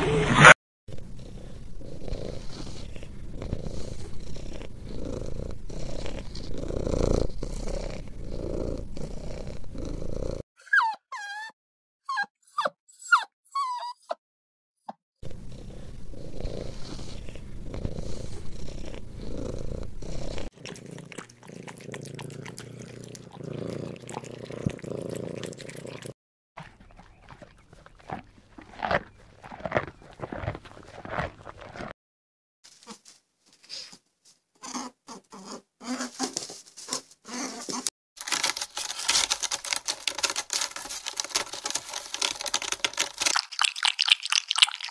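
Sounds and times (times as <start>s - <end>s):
cat purring: 0.9s - 10.4s, 15.2s - 31.9s.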